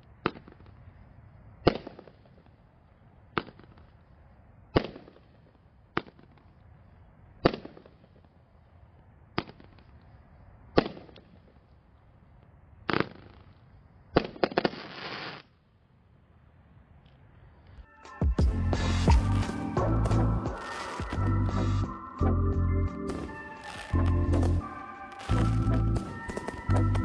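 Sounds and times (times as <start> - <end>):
fireworks crackling: 12.9 - 15.6, 18.6 - 22.0, 23.0 - 27.0
fireworks bangs: 19.0 - 21.8, 23.1 - 27.0.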